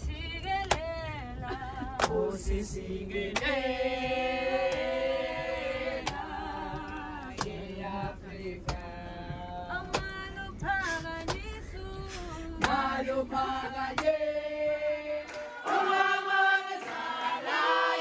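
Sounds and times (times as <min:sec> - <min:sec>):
women singing in chorus: 0:00.0 - 0:18.0
sharp claps: 0:00.4 - 0:01.0, 0:01.9 - 0:02.3, 0:03.3 - 0:07.7, 0:09.8 - 0:12.9, 0:13.9 - 0:14.3, 0:15.2 - 0:17.6.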